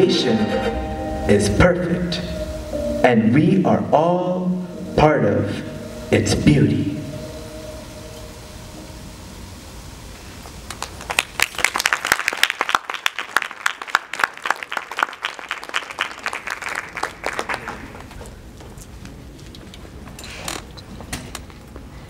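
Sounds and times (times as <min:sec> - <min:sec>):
audience applause: 0:10.4 - 0:18.5.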